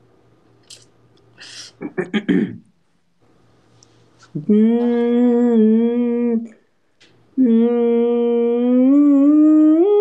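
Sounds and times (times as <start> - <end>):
young man singing long notes: 4.3 - 6.6, 7.4 - 10.0.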